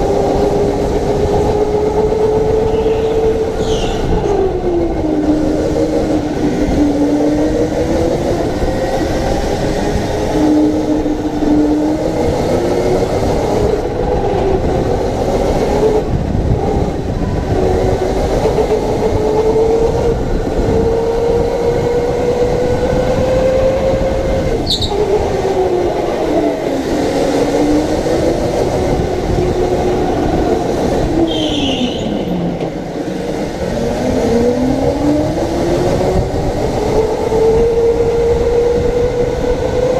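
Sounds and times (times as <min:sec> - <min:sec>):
high squeaks: 0:24.6 - 0:25.0.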